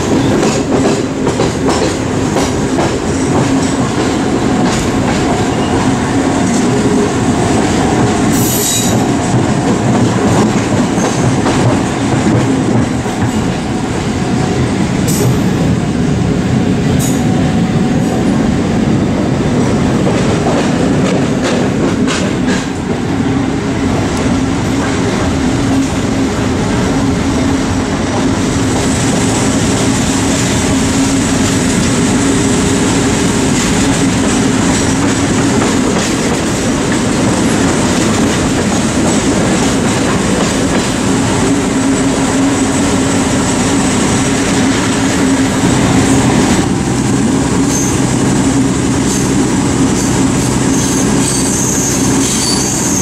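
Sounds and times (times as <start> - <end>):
locomotive engine drone: 0.0 - 53.0
train wheels rumbling on rails: 0.0 - 53.0
high-pitched wheel squeals: 47.6 - 48.0, 50.7 - 53.0.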